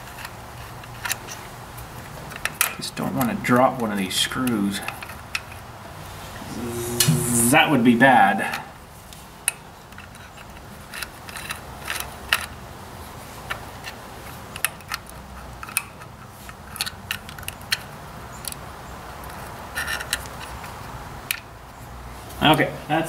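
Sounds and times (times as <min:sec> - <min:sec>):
small metal clicks and scrapes: 0:00.0 - 0:01.4, 0:09.5 - 0:12.6, 0:13.4 - 0:18.6, 0:19.2 - 0:21.4
faint steady hum: 0:06.2 - 0:08.8.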